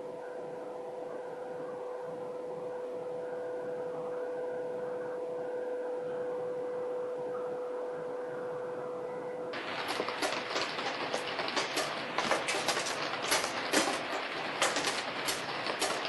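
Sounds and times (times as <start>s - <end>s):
faint high tones: 0.0s - 9.6s
steady hum: 0.0s - 16.0s.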